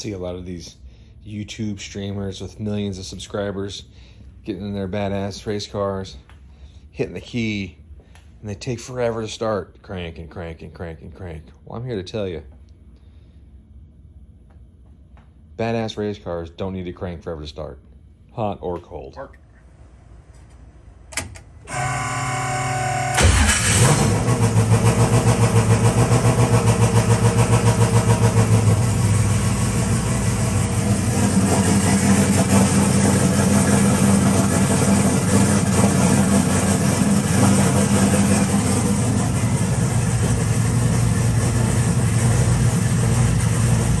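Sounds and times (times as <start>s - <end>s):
starter motor cranking: 23.1s - 24.3s
race car engine lumpy idle: 24.1s - 44.0s.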